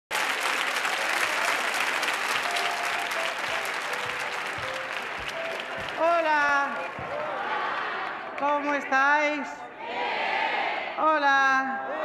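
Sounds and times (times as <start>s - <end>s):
audience applauding: 0.1s - 8.5s
quiet music: 2.4s - 9.1s.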